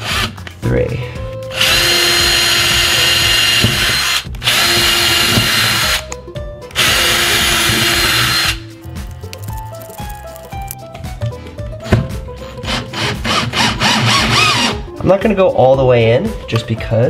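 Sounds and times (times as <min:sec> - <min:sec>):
cordless drill drilling: 0:00.0 - 0:00.4, 0:01.5 - 0:06.1, 0:06.8 - 0:08.6, 0:12.6 - 0:14.8
soft background music: 0:00.0 - 0:17.0.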